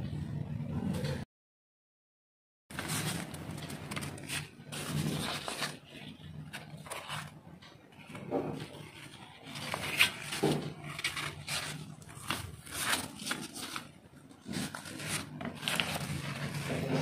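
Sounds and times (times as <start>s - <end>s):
low steady hum: 0.0s - 1.2s
paper towel rustling and crinkling: 2.7s - 17.0s.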